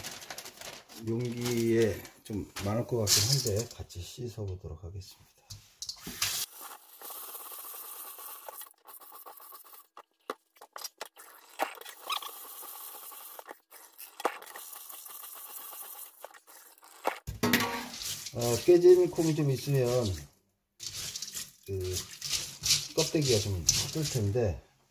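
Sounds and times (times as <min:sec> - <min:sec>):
hands stirring beans: 0:00.0 - 0:03.8, 0:05.5 - 0:24.6
tap water pouring into colander: 0:20.8 - 0:24.3.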